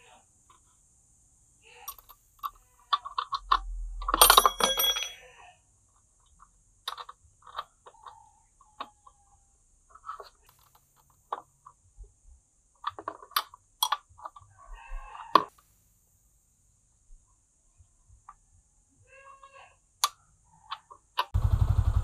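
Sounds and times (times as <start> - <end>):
wrench clinking on metal bolts: 1.9 - 5.3
metal tools clattering: 4.0 - 5.3.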